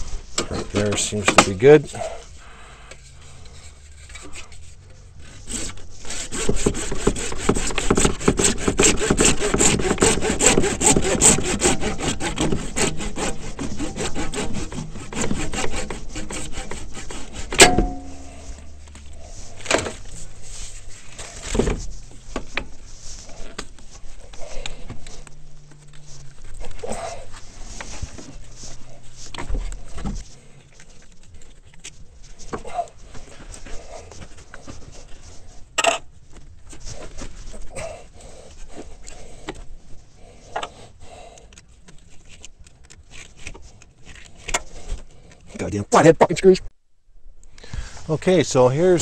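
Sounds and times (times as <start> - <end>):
hand saw cutting hose: 5.2 - 25.3.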